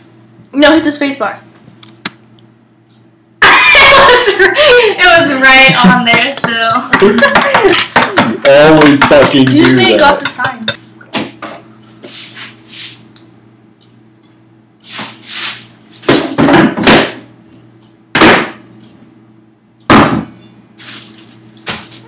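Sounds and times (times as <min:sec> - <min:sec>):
things knocking in cupboards: 0:05.7 - 0:10.6, 0:16.0 - 0:17.2, 0:19.9 - 0:20.3.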